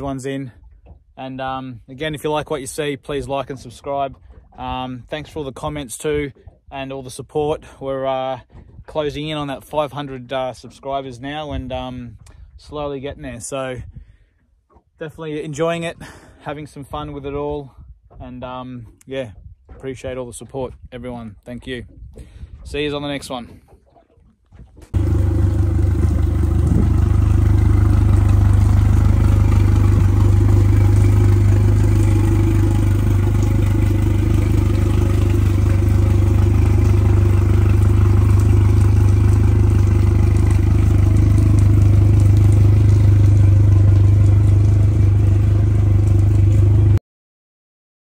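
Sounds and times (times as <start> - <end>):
outboard motor running: 0.0 - 17.2, 18.0 - 47.0.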